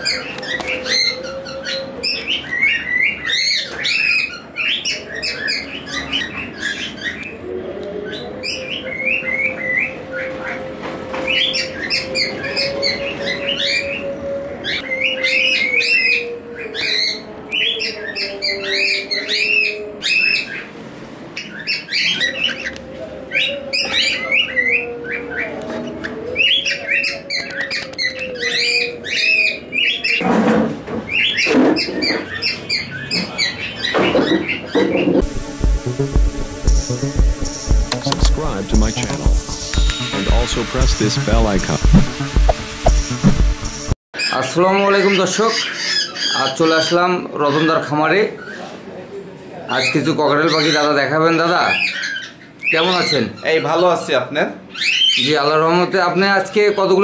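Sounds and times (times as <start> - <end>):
cockatiels chirping and chattering: 45.0 - 48.7, 49.7 - 54.0, 54.7 - 55.4.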